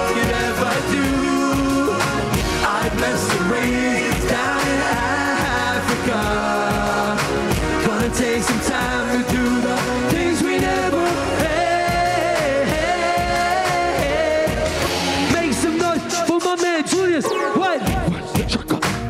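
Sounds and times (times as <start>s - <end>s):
person singing: 0.0s - 15.0s
drum beat: 0.0s - 16.8s, 17.8s - 19.0s.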